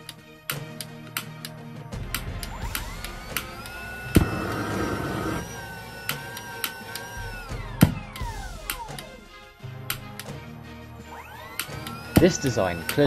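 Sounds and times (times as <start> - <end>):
electric fan whining: 2.1 - 10.2, 11.1 - 13.0.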